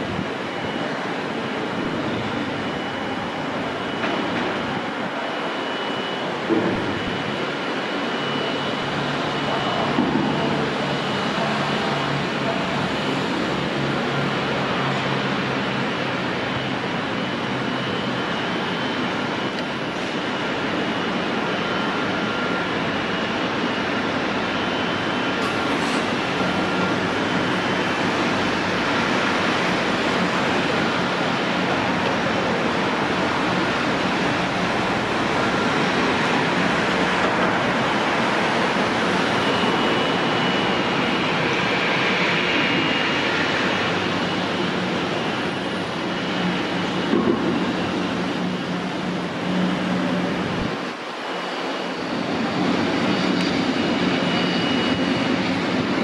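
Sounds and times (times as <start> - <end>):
faint high whining tones: 0.0 - 56.0
jet engines roaring: 0.0 - 56.0.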